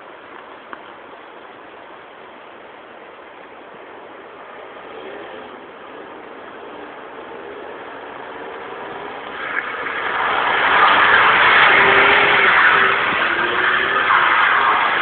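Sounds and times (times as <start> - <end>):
car engine revving: 4.9 - 15.0
tyre noise: 5.0 - 15.0.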